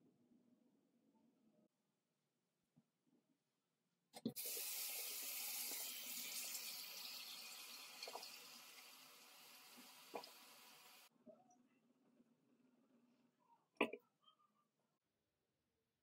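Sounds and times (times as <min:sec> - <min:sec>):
water running from a tap: 0:04.3 - 0:11.1.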